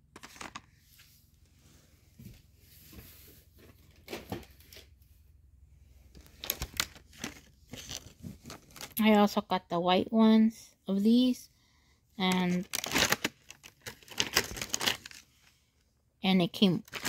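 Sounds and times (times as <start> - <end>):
cardboard boxes rustling: 6.2 - 9.0.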